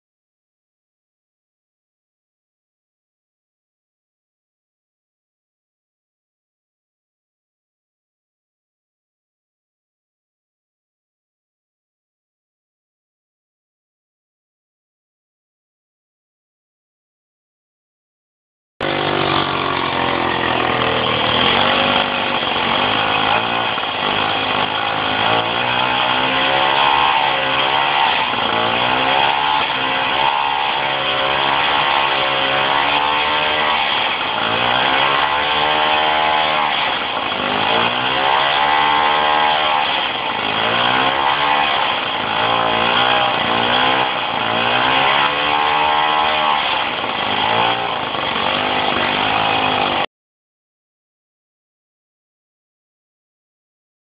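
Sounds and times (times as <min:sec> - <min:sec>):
small two-stroke engine revving: 0:18.8 - 0:50.1.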